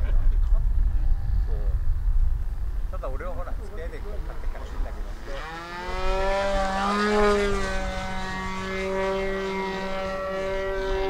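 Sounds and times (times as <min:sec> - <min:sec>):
model airplane motor buzzing: 0:05.0 - 0:11.0.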